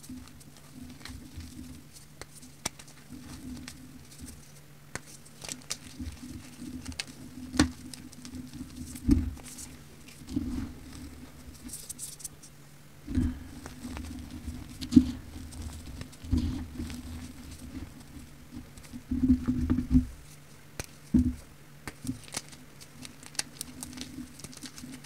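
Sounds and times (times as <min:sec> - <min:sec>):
grit and powder pattering: 0:00.0 - 0:25.0
powder crumbling between fingers: 0:21.8 - 0:25.0.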